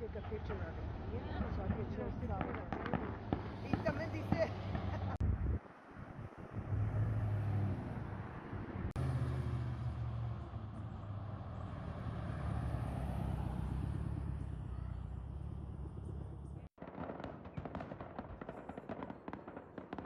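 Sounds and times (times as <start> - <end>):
low rumble of street traffic: 0.0 - 19.1.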